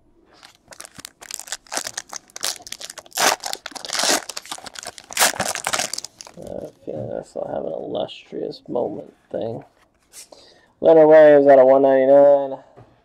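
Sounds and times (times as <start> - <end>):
foil wrapper tearing and crinkling: 0.4 - 6.6.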